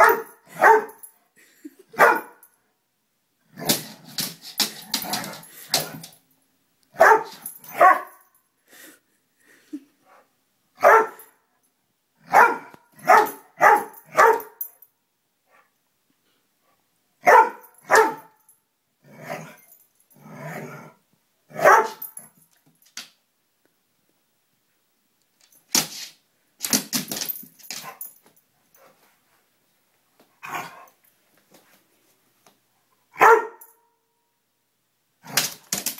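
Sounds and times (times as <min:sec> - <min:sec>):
dog barking: 0:00.0 - 0:01.0, 0:02.0 - 0:02.4, 0:07.0 - 0:08.2, 0:10.8 - 0:11.4, 0:12.3 - 0:14.6, 0:17.2 - 0:18.4, 0:21.5 - 0:22.1, 0:33.1 - 0:33.9.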